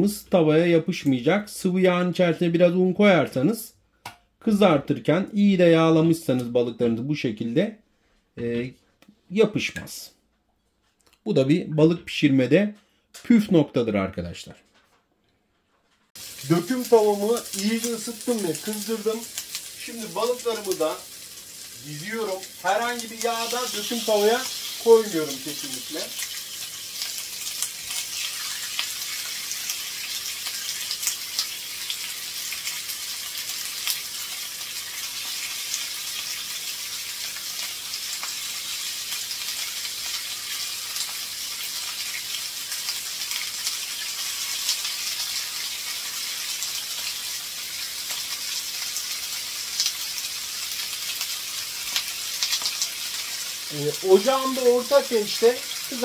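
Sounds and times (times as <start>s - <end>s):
sharp crackles: 16.2s - 36.5s
fish sizzling on a grill pan: 16.2s - 56.0s.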